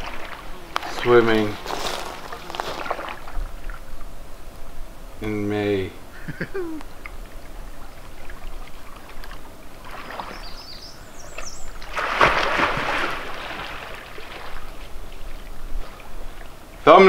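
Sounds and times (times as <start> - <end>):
water sloshing: 0.0 - 4.1, 6.6 - 16.9
person splashing into water: 1.9 - 3.4, 9.8 - 10.5, 11.8 - 14.8.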